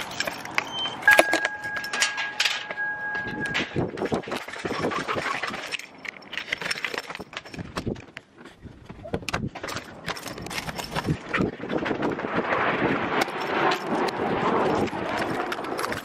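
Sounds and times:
keys jangling in lock: 0.0s - 4.8s, 5.5s - 7.8s, 9.6s - 11.2s
steady beep: 0.6s - 3.8s.

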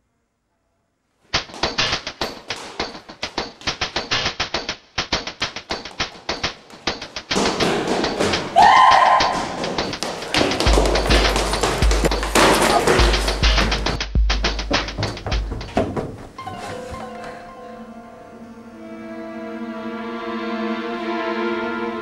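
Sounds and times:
footsteps running on concrete stairs: 1.4s - 17.4s.

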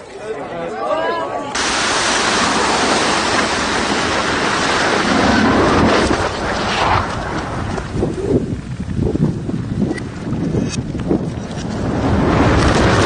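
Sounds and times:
tower collapse roar: 1.6s - 8.1s, 11.8s - 13.0s.

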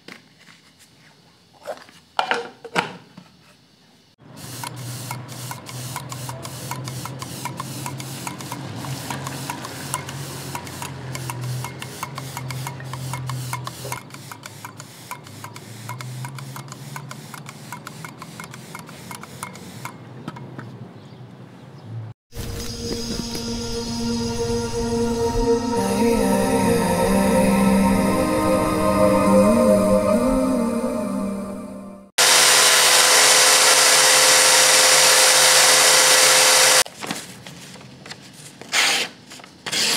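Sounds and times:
air compressor motor hum: 32.2s - 36.8s.

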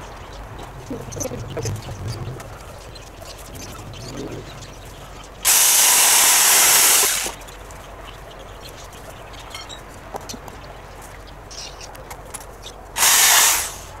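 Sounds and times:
compressed air hissing: 5.5s - 7.4s, 13.0s - 14.0s.

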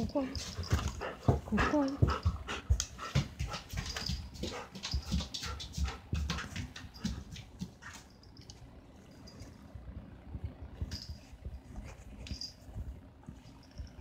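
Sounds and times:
rustling on fabric sofa: 10.8s - 14.0s.

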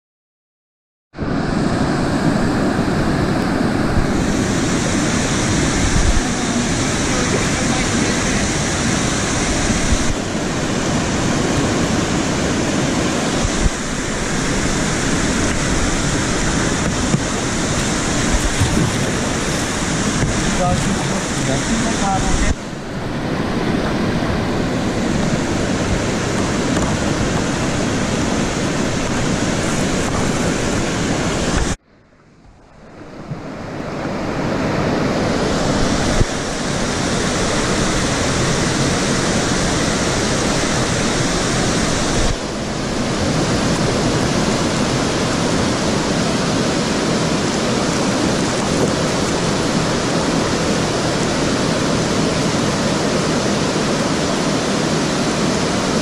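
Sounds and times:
white water pouring over a weir: 4.2s - 23.0s, 35.4s - 56.0s.

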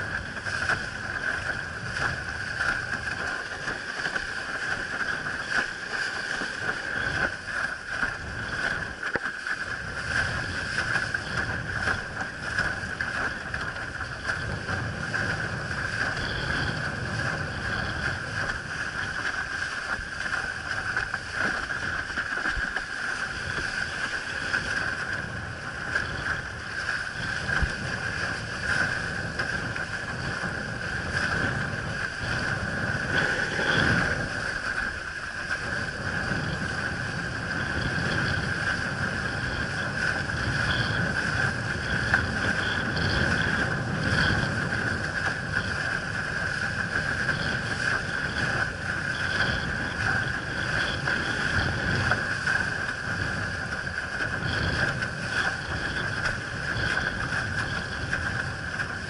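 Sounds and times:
water splashing against board: 0.0s - 16.8s
wind buffeting microphone: 0.0s - 59.0s.

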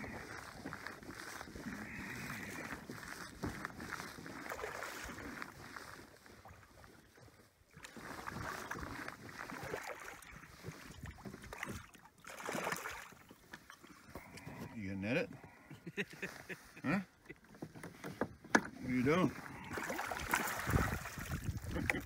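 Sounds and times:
waves lapping against kayak hull: 0.0s - 22.0s
wind on microphone: 20.5s - 22.0s.

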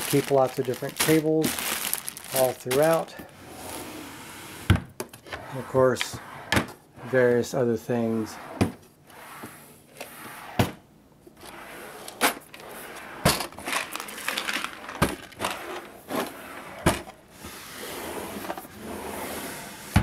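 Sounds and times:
drawers sliding on runners: 3.4s - 10.8s, 11.4s - 20.0s
drawers knocking shut: 10.5s - 10.8s, 13.2s - 13.9s, 14.5s - 17.2s.

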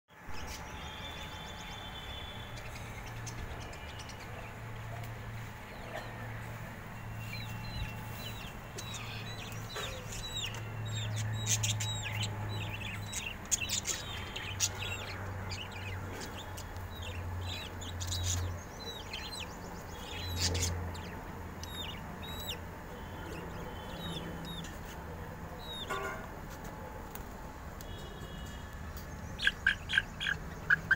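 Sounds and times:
budgerigars chirping and chattering: 7.2s - 25.0s, 25.6s - 25.9s, 29.4s - 30.9s.

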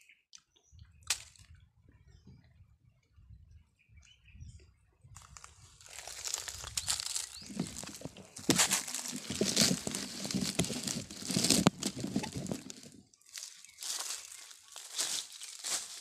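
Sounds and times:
phone rustling against clothing: 5.2s - 16.0s
sharp clicks and scrapes: 6.0s - 13.0s.

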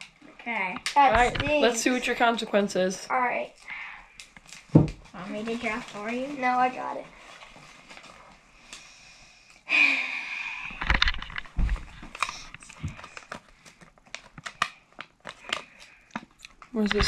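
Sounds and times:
paper crinkling and rustling: 4.2s - 8.4s, 10.8s - 17.0s.

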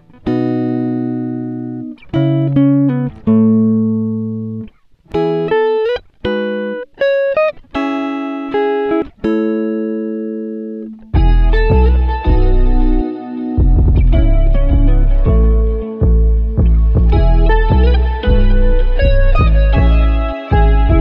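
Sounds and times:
plucked-string melody: 0.0s - 21.0s
deep bass line: 11.2s - 21.0s.

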